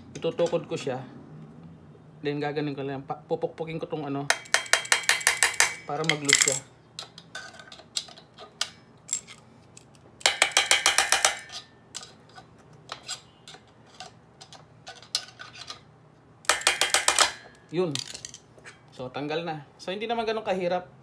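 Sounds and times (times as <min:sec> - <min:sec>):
screwdriver being knocked: 0:04.3 - 0:06.6, 0:10.2 - 0:11.4
metal tools clinking on metal: 0:04.3 - 0:15.9, 0:16.5 - 0:18.8.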